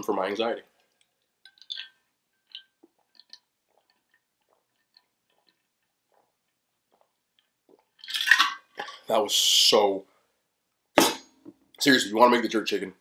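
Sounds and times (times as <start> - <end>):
mouth smacks and clicks: 0.8 - 8.1
person chewing food: 0.8 - 8.2.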